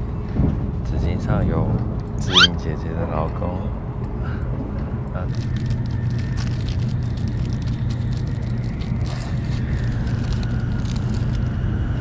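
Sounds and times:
plastic wrapper crinkling: 5.4 - 11.5.

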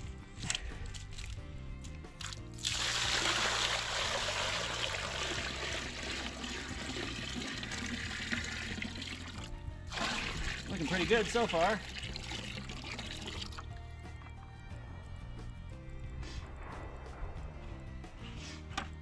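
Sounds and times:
water pouring and splashing: 0.4 - 13.8.

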